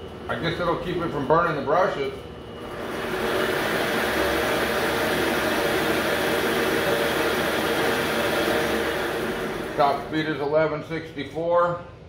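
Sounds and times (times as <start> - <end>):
metal lathe motor running: 2.6 - 10.7.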